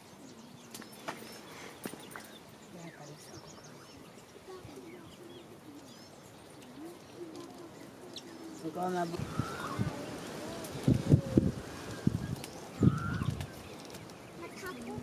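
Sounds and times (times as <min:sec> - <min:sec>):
low wavering bird coo: 0:04.5 - 0:13.4.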